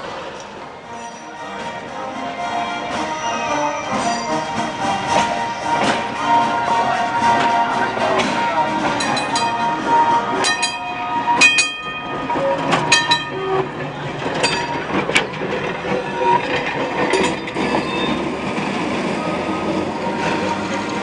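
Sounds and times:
streetcar rolling rumble: 0.0s - 21.0s
metallic wheel clanks: 7.3s - 18.2s.

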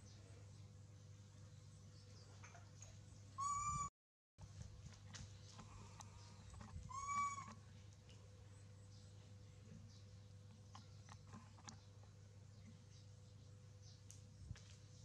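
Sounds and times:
steady low hum: 0.0s - 15.0s
baby monkey cooing: 6.9s - 7.6s.

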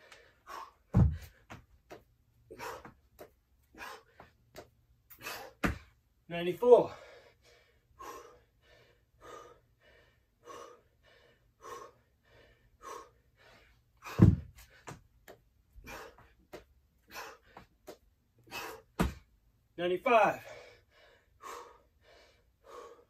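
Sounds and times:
man panting: 0.0s - 1.6s, 2.4s - 5.9s, 6.8s - 15.1s, 15.8s - 19.2s, 20.2s - 23.0s
dumbbells thudding on floor mat: 0.9s - 2.0s, 5.6s - 5.9s, 14.0s - 15.0s, 18.9s - 19.3s.

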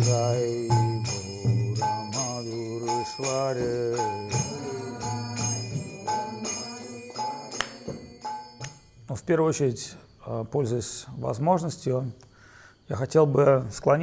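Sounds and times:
wavering melodic line: 0.0s - 9.0s
jingling metal percussion: 0.0s - 10.2s.

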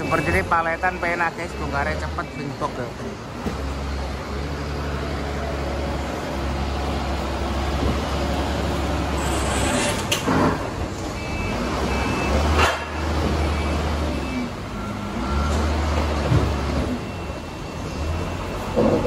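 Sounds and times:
reversing alarm beeps: 0.0s - 2.6s, 11.1s - 19.0s
forklift engine humming: 0.0s - 19.0s.

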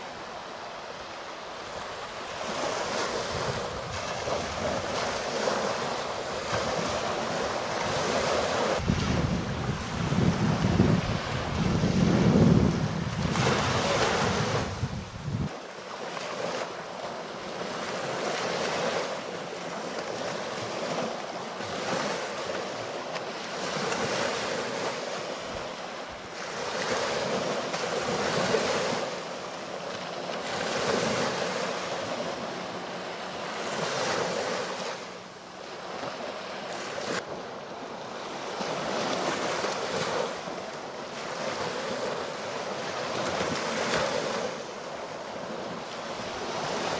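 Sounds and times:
sea waves washing on beach: 0.0s - 46.9s
wind buffeting microphone: 2.4s - 15.6s.

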